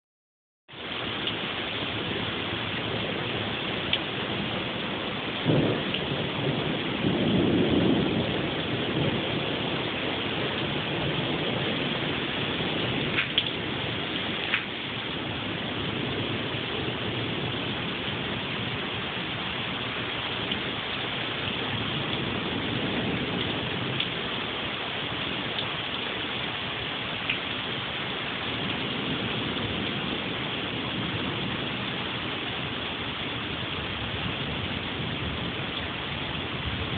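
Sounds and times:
heavy rain falling: 0:00.7 - 0:36.9
thunder crack and rumble: 0:01.2 - 0:26.6, 0:27.2 - 0:36.9.

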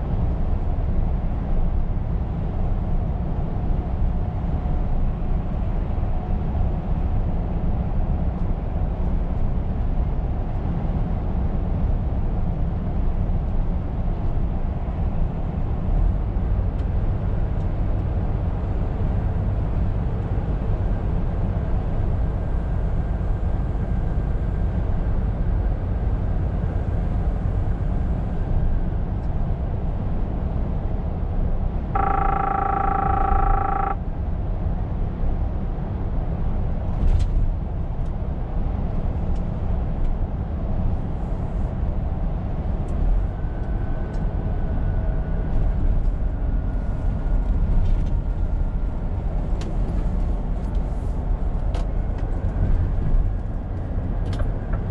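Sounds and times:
truck engine and road rumble: 0:00.0 - 0:54.9
steady beep tone: 0:32.0 - 0:34.0.

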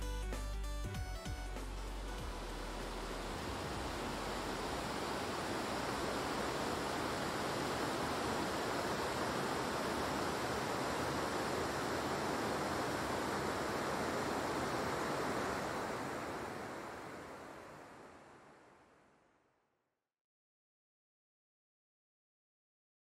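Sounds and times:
steady rushing noise: 0:01.6 - 0:19.2.

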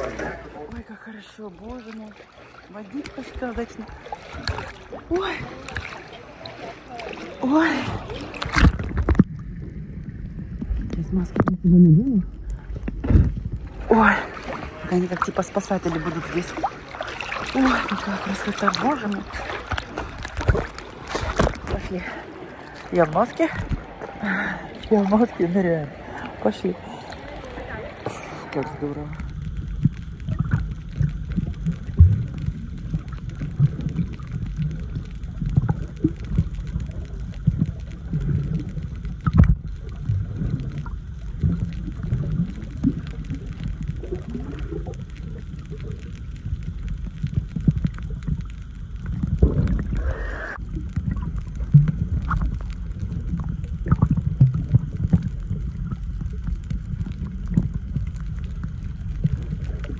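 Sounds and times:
muffled underwater rumble: 0:00.0 - 0:59.9
bubbly rush: 0:01.5 - 0:59.9
underwater pops and clicks: 0:08.4 - 0:09.4, 0:29.7 - 0:50.1, 0:53.3 - 0:59.9.

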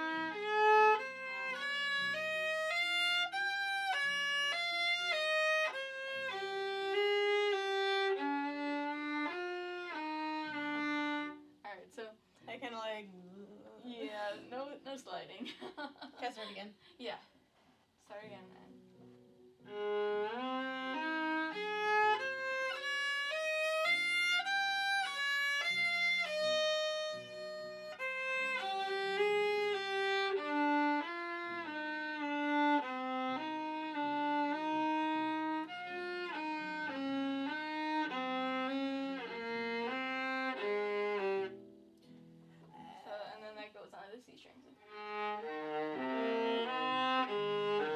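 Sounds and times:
bowed violin melody: 0:00.0 - 0:15.3, 0:18.1 - 0:41.8, 0:43.1 - 0:47.9.

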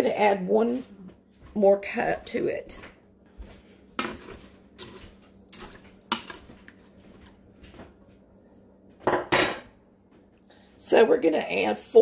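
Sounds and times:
spoon stirring beans in water: 0:04.0 - 0:07.8.

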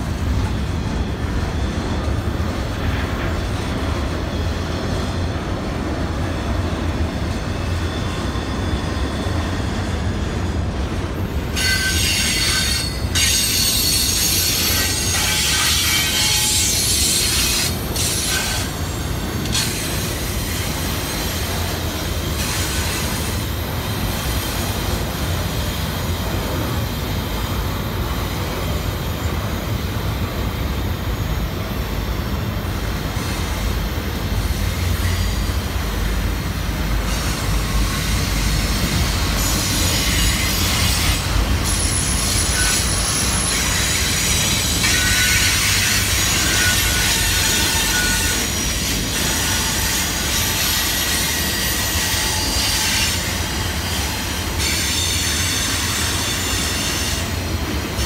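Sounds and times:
freight train wheels rumbling: 0:00.0 - 0:58.0
high wheel squeal: 0:07.4 - 0:10.2, 0:11.5 - 0:23.4, 0:37.0 - 0:57.4.

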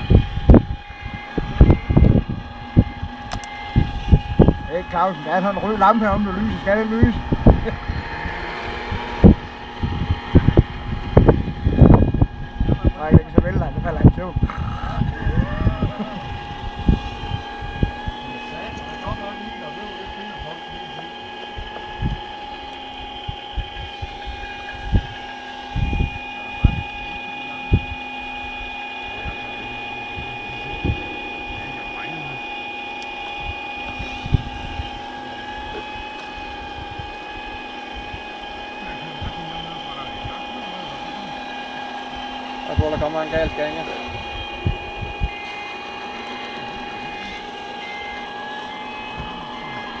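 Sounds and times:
hydraulic pump whine: 0:00.0 - 0:50.0
dull low thumps: 0:27.7 - 0:38.2.

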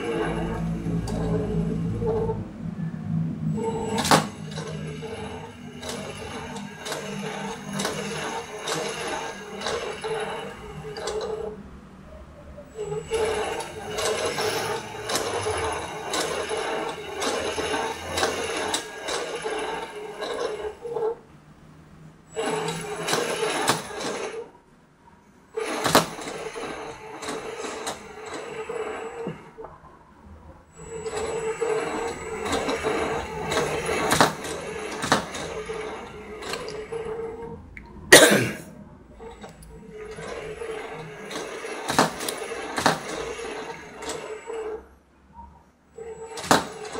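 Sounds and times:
toy motor and gears whirring: 0:00.0 - 0:02.4, 0:03.5 - 0:11.6, 0:12.7 - 0:21.2, 0:22.3 - 0:24.5, 0:25.5 - 0:29.6, 0:30.7 - 0:37.7, 0:39.2 - 0:44.9
short loud cough-like burst: 0:38.1 - 0:38.8.

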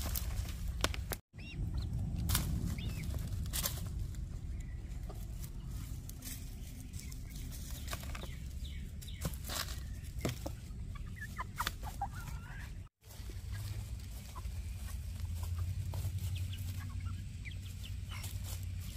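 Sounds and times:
hens scratching and pecking: 0:00.0 - 0:18.9
low rumble: 0:01.4 - 0:07.8, 0:13.1 - 0:18.9
hens clucking softly: 0:09.8 - 0:18.9.

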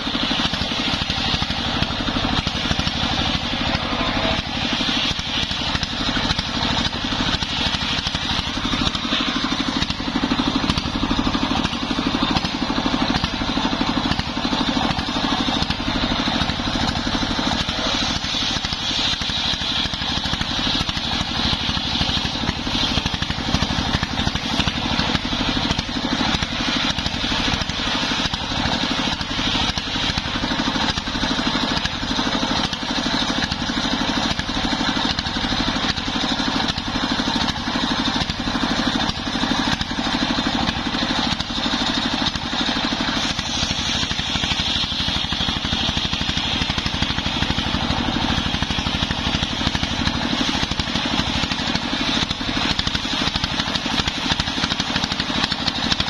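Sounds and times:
circular saw cutting log: 0:00.0 - 0:56.0
diesel engine running: 0:00.0 - 0:56.0.

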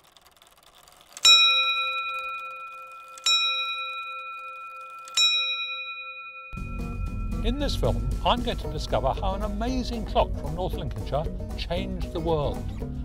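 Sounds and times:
clock bell struck by hammer: 0:01.3 - 0:09.1.

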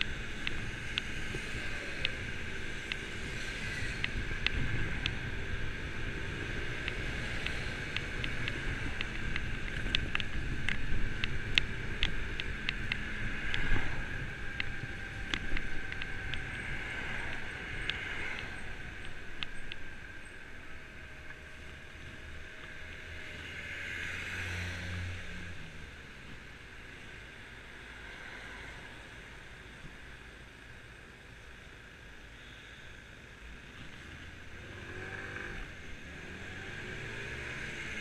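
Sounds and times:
tyres on wet road: 0:00.0 - 0:38.0
sharp ticks: 0:06.8 - 0:19.9.

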